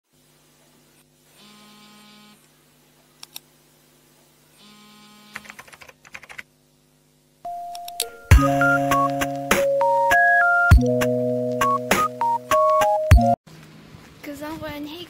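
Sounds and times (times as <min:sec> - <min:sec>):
keyboard typing: 0:05.3 - 0:06.5
steady musical tone: 0:07.5 - 0:13.4.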